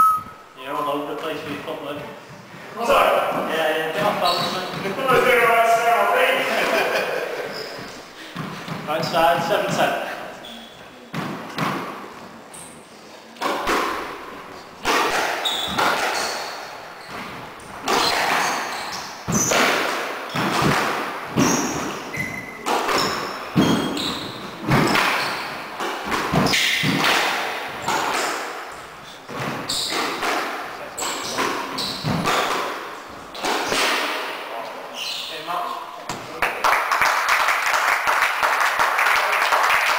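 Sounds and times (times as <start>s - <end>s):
squash ball hitting rackets and walls: 3.2s - 5.5s, 7.7s - 10.2s, 10.9s - 12.8s, 13.4s - 34.4s.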